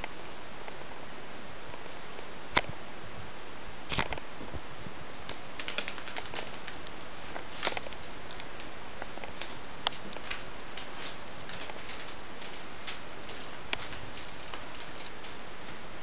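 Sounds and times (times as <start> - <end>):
steady hiss: 0.0 - 16.0
moth wings tapping on wall: 5.2 - 16.0.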